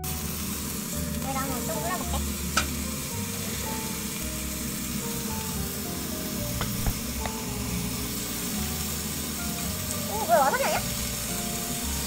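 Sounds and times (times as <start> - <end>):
meat sizzling in a pan: 0.0 - 12.0
soft background music: 0.0 - 12.0.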